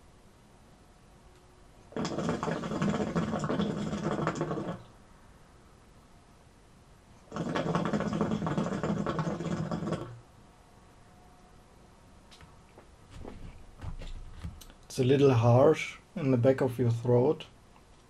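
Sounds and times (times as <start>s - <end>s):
hookah water bubbling: 1.9s - 4.9s, 7.2s - 10.2s.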